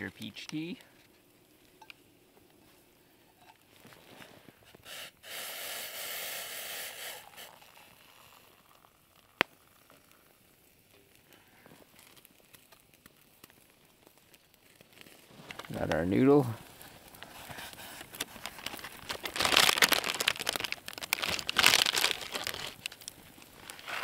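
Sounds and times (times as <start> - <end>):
hot water pouring into mug: 4.8 - 12.5.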